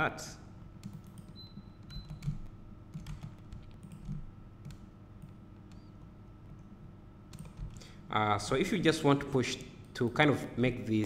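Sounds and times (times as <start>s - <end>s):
low steady hum: 0.0s - 11.0s
computer mouse and keyboard clicks: 7.3s - 7.8s.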